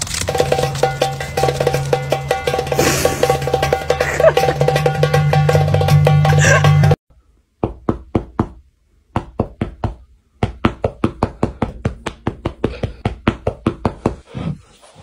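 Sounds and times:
music: 0:00.1 - 0:07.0.

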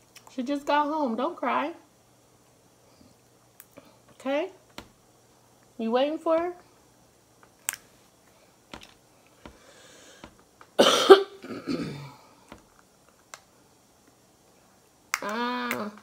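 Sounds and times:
person coughing: 0:10.8 - 0:12.2.

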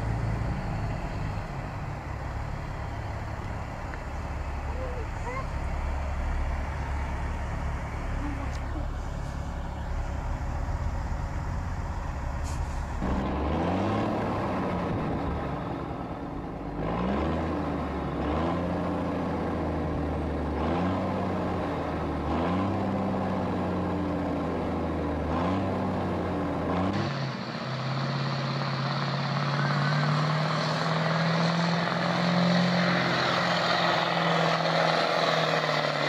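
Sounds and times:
truck diesel engine revving: 0:00.0 - 0:36.0.

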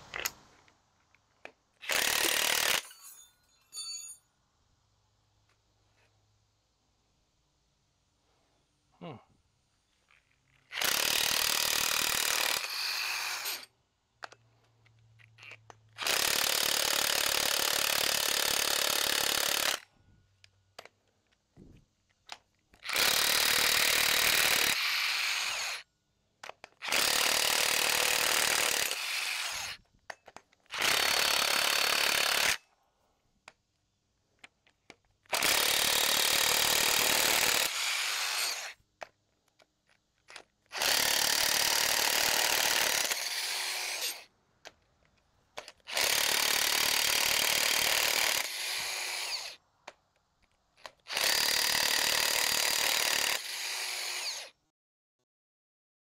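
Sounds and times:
power tool spinning bolts: 0:01.8 - 0:03.3, 0:10.6 - 0:13.7, 0:15.4 - 0:19.8, 0:22.7 - 0:25.8, 0:26.7 - 0:32.6, 0:35.2 - 0:38.8, 0:40.3 - 0:44.3, 0:45.6 - 0:49.6, 0:50.8 - 0:54.6.

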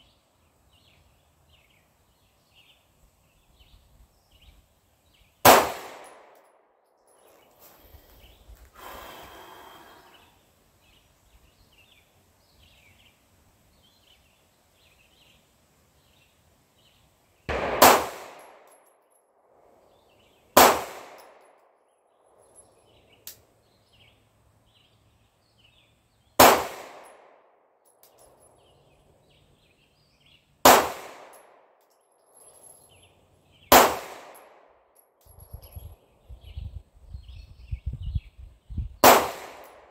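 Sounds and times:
pistol shots: 0:05.4 - 0:06.5, 0:17.5 - 0:18.8, 0:20.6 - 0:21.5, 0:26.4 - 0:27.3, 0:30.6 - 0:31.5, 0:33.7 - 0:34.6, 0:39.0 - 0:39.9.

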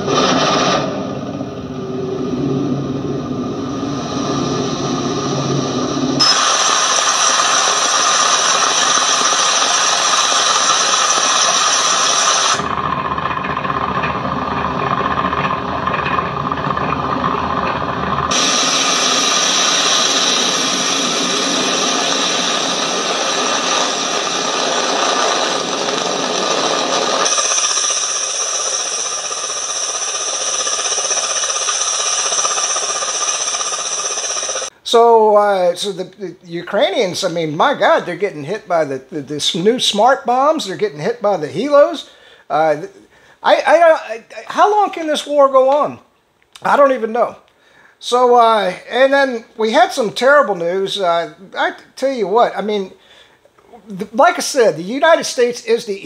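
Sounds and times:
helicopter turbine and rotor noise: 0:00.1 - 0:34.7.

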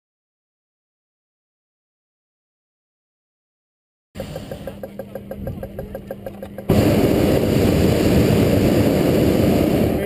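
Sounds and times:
small engine running: 0:04.2 - 0:09.8
propane burner blast: 0:06.7 - 0:10.0.

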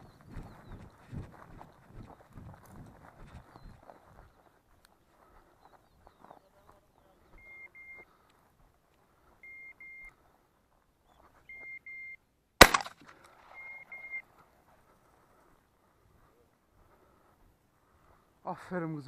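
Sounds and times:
beeper collar double beeps: 0:07.4 - 0:08.0, 0:09.4 - 0:10.1, 0:11.5 - 0:12.2, 0:13.5 - 0:14.2
shotgun shot: 0:12.6 - 0:13.6.

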